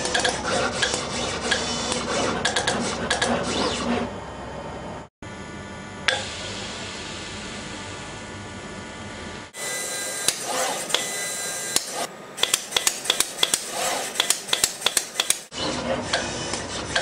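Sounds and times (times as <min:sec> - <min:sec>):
sharp machine clicks: 0:11.7 - 0:15.5.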